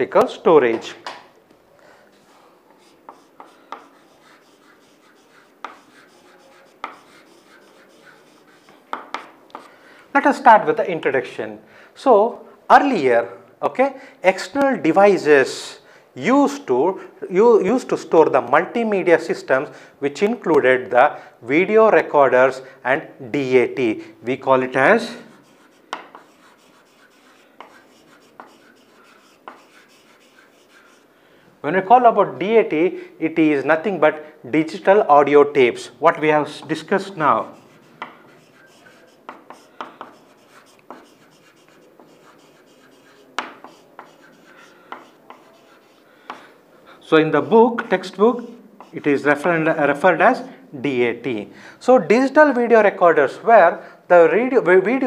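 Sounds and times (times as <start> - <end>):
chalk scratching on blackboard: 2.1 - 9.7, 24.9 - 31.1, 36.6 - 49.7
chalk tapping on board: 2.2 - 9.7, 25.2 - 31.0, 37.4 - 46.5, 47.8 - 48.1, 48.8 - 49.1.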